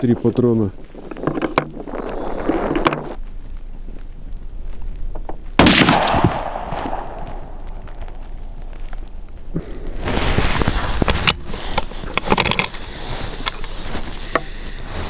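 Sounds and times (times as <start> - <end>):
rifle shot: 5.6 - 7.7.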